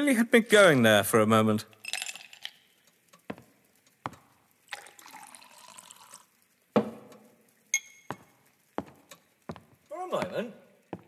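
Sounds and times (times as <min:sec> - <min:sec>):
drink poured into a glass: 0:01.8 - 0:02.7, 0:04.7 - 0:07.0
glass clinking: 0:01.8 - 0:02.7, 0:07.7 - 0:08.2
bottle thud set down: 0:06.8 - 0:07.1.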